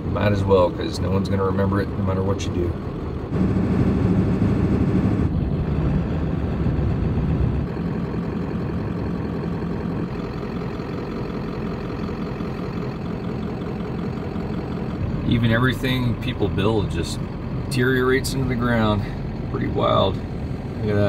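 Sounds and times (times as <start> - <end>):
diesel truck engine running: 0.0 - 21.0
road noise: 0.0 - 21.0.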